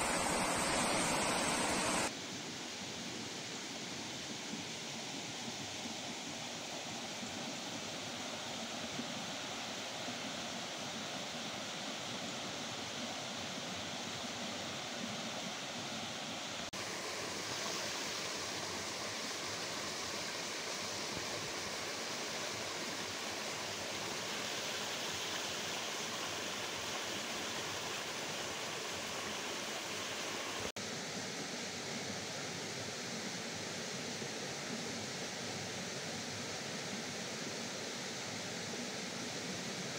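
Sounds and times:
rushing runoff water: 0.0s - 30.9s.

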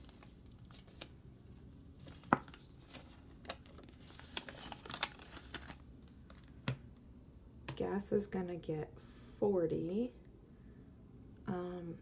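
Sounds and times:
paper bills rustling and crinkling: 0.0s - 6.6s.

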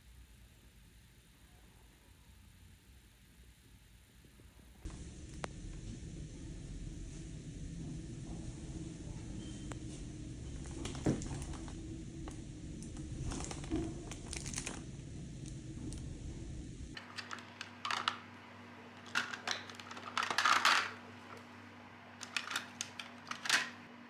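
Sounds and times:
low rumbling hum: 4.8s - 24.0s
rustling and crinkling: 9.2s - 18.2s.

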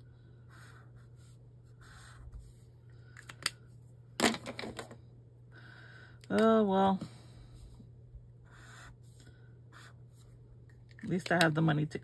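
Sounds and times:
highlighter rubbing on paper: 0.4s - 2.7s, 8.4s - 10.3s.

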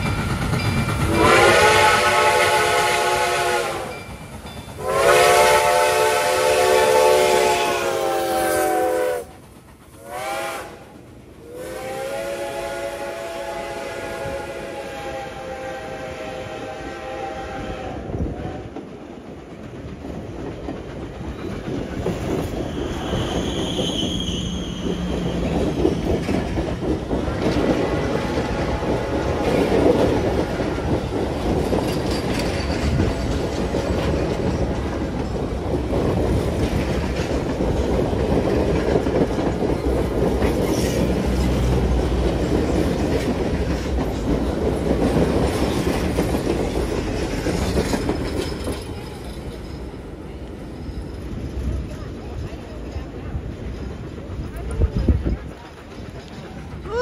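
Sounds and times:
train wheels clacking over rail joints: 0.0s - 12.6s, 18.2s - 57.0s
high wheel squeal: 22.6s - 25.8s.

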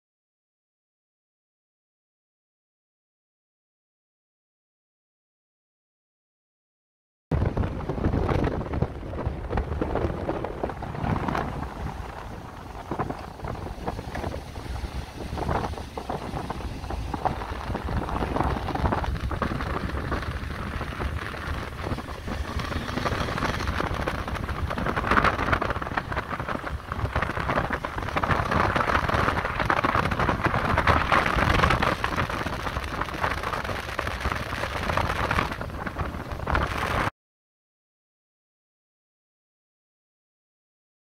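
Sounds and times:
wind buffeting microphone: 7.3s - 37.1s
motorcycle engine and tyre noise: 7.4s - 37.1s.

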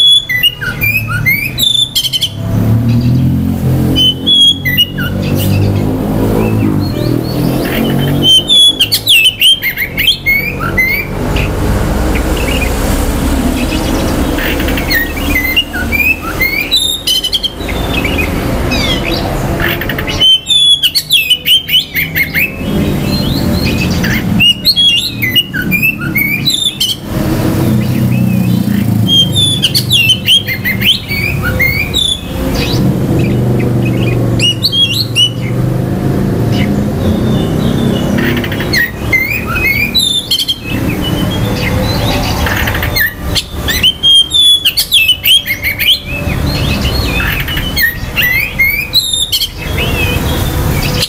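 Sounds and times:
bird singing whistles and chirps: 0.0s - 12.7s, 13.6s - 27.1s, 27.7s - 35.6s, 36.4s - 51.0s.

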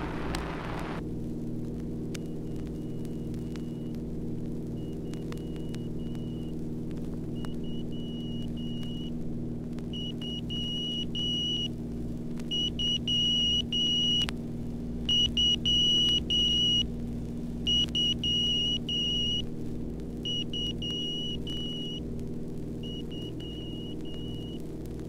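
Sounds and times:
aircraft engine drone: 0.0s - 25.0s
morse code beeps: 4.8s - 6.5s, 7.4s - 9.1s, 10.0s - 11.7s, 12.5s - 14.3s, 15.1s - 16.8s, 17.7s - 19.4s, 20.2s - 22.0s, 22.8s - 24.6s.

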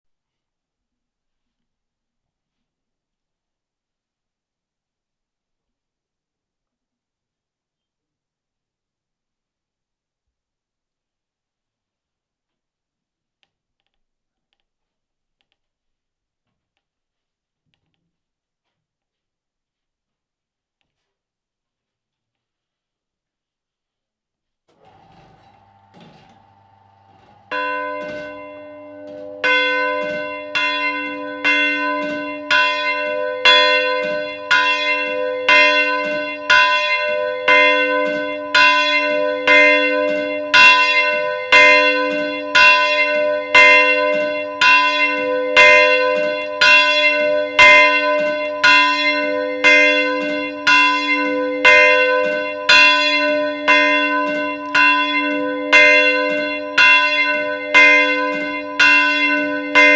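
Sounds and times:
church bells pealing: 24.8s - 59.9s.

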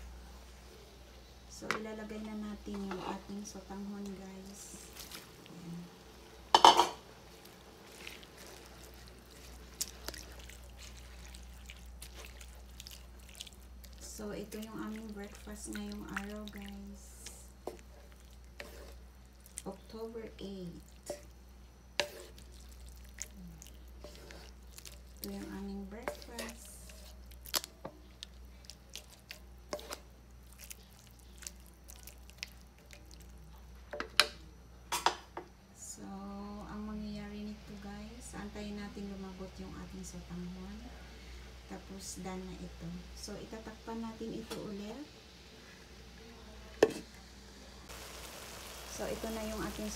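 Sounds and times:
liquid sounds in a pan: 3.1s - 34.3s, 43.2s - 49.9s
wet dripping and squishing: 4.9s - 5.6s, 7.3s - 19.8s, 22.0s - 33.4s.

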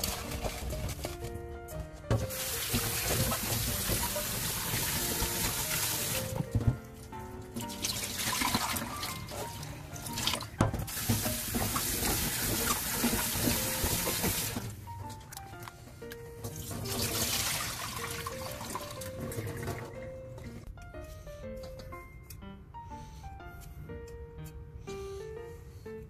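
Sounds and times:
light background music: 0.0s - 26.0s
tap running into metal bowl: 2.1s - 6.8s, 10.3s - 14.6s.

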